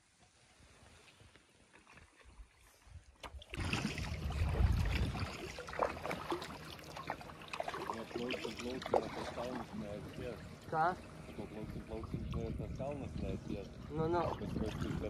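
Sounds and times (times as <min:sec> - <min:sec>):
wind rumbling on microphone: 0:02.8 - 0:06.2, 0:09.0 - 0:15.0
water splashing and dripping: 0:03.2 - 0:10.2.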